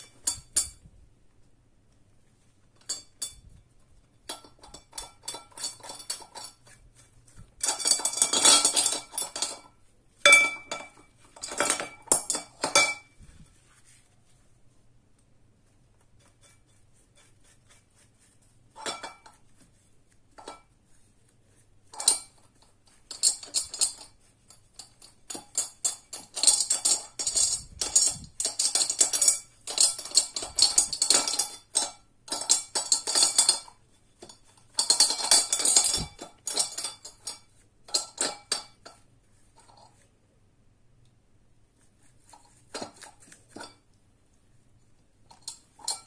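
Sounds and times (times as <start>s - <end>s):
brush scrubbing wet metal: 2.9s - 10.2s, 13.4s - 38.3s, 41.7s - 43.8s
metal parts clinking on glass: 24.8s - 38.8s.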